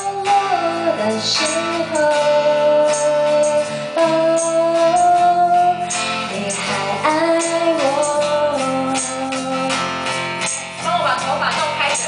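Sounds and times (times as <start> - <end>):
woman singing long notes: 0.0 - 9.8
strummed acoustic guitar: 0.0 - 12.0.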